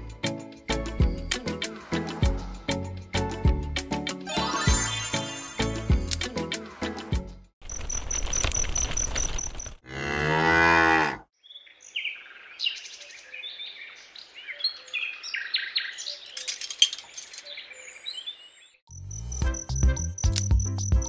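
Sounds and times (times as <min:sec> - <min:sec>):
crickets chirping: 0:07.6 - 0:09.8, 0:18.9 - 0:21.0
cow mooing: 0:09.8 - 0:11.3.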